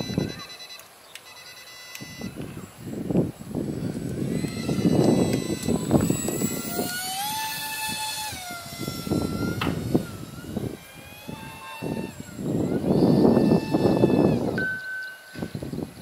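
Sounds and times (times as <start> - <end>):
model plane motor whining: 0.0 - 14.6
gusty low rumble: 2.2 - 14.6.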